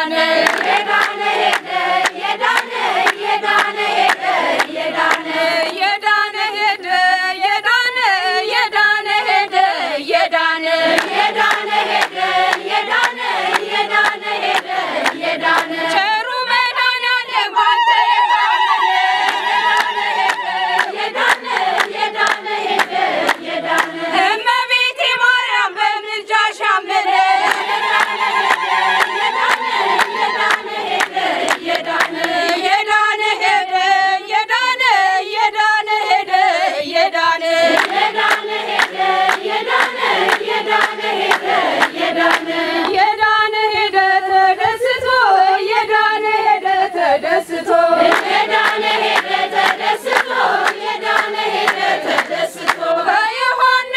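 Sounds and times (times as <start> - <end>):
women singing a hymn in unison: 0.0 - 53.9
hand claps: 0.4 - 5.9, 10.9 - 16.0, 19.2 - 24.0, 27.4 - 32.8, 37.6 - 43.0, 48.0 - 52.9.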